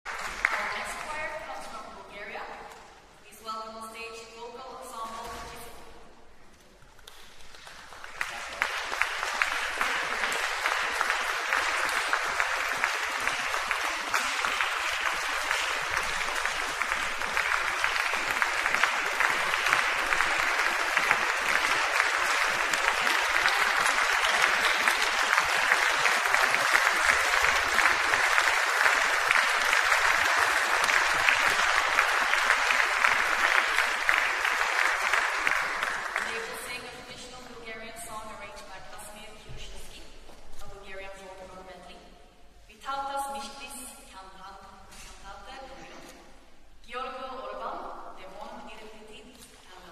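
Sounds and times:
audience applauding: 0:00.0 - 0:01.1, 0:07.0 - 0:36.6.

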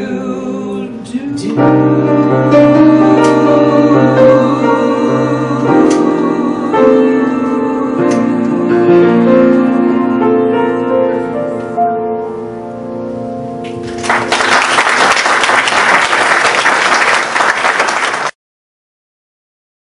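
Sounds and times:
grand piano chords: 0:00.0 - 0:16.2
audience applause: 0:13.8 - 0:18.4.

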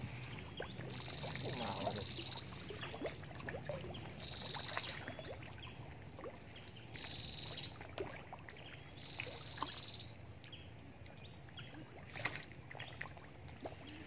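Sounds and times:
fish splashing at water surface: 0:00.0 - 0:09.8, 0:11.8 - 0:14.0.

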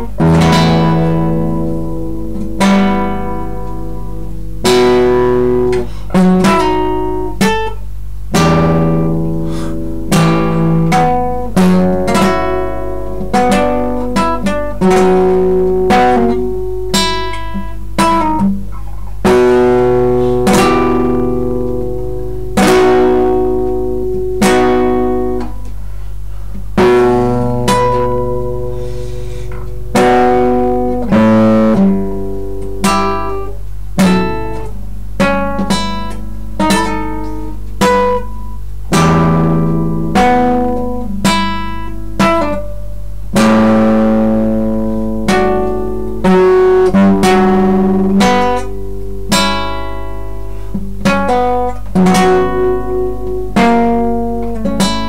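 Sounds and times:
classical guitar playing: 0:00.0 - 0:55.0
steady low hum: 0:00.0 - 0:55.0.

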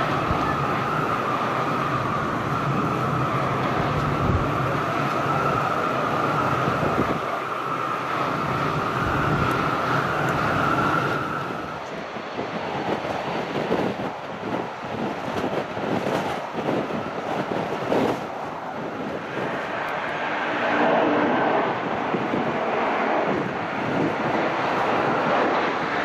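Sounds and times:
jet engine high whine: 0:00.0 - 0:26.0
jet engine roar: 0:00.0 - 0:26.0.

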